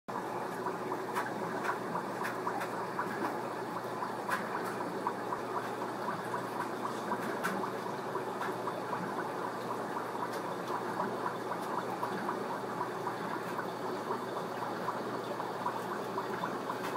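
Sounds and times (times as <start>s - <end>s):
aquarium water bubbling: 0.1s - 16.9s.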